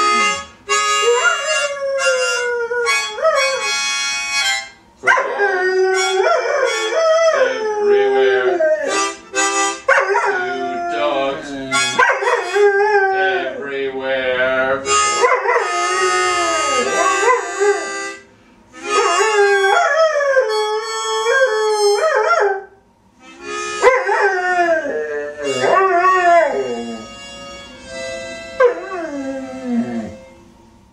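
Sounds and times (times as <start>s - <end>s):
music: 0.0s - 22.3s, 23.2s - 30.9s
dog howling: 1.0s - 3.7s, 5.0s - 9.0s, 9.9s - 13.6s, 15.2s - 18.0s, 18.8s - 22.7s, 23.8s - 27.1s, 28.6s - 30.3s.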